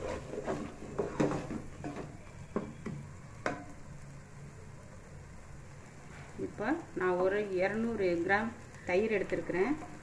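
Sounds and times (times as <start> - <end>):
spatula scraping metal pot: 0.0 - 2.1
light sizzle: 0.0 - 10.0.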